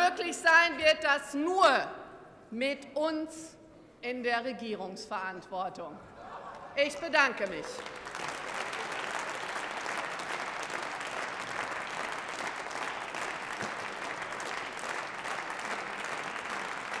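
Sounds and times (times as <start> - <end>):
crowd applauding: 6.4 - 17.0.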